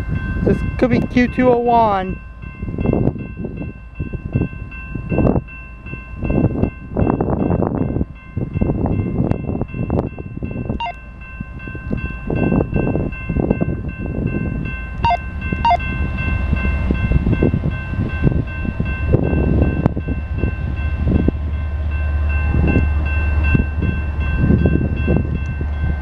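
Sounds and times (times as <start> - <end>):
locomotive rumble: 0.0 - 26.0
high ringing tone: 9.6 - 21.0.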